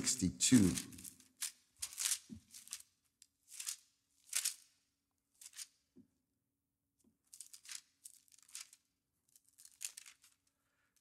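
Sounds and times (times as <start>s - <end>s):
thin pages turning: 0.0s - 2.9s, 3.5s - 4.7s, 5.3s - 5.7s, 7.3s - 8.8s, 9.4s - 10.5s.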